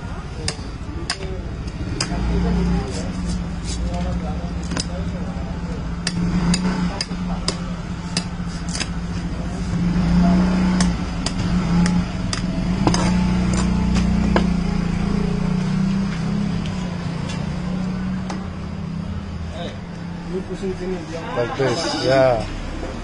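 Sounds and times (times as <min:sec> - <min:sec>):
knife chopping coconut husk: 0:00.4 - 0:03.9, 0:04.6 - 0:04.9, 0:06.0 - 0:09.0, 0:10.5 - 0:14.6.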